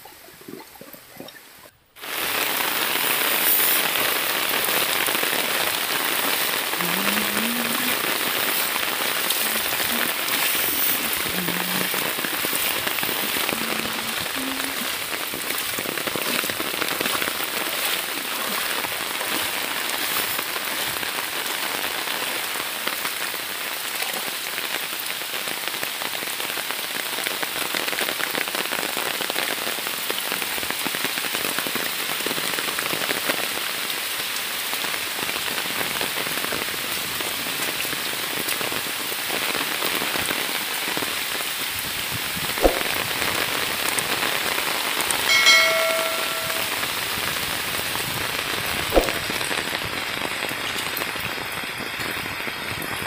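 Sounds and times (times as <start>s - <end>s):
heavy rain on foliage: 1.9s - 53.0s
short pitched tone: 45.3s - 46.9s.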